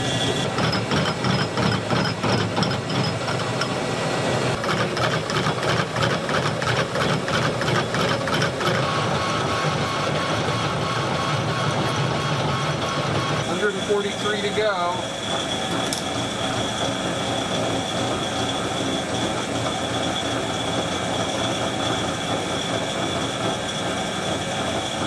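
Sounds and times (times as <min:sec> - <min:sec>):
metal lathe running: 0:00.0 - 0:25.0
rapid knocking of cutting tool: 0:00.4 - 0:03.8, 0:04.6 - 0:13.5.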